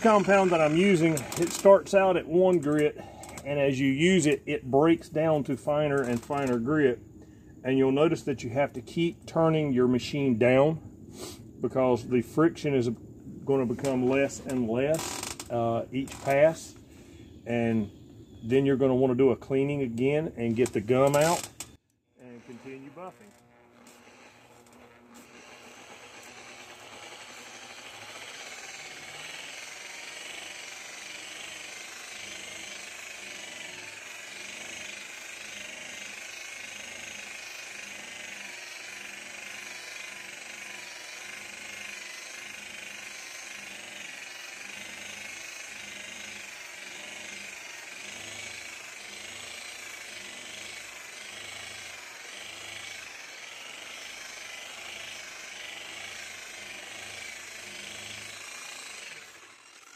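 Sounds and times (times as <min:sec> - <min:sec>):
rotary buffer motor running: 0:00.0 - 0:07.2, 0:20.0 - 0:59.9.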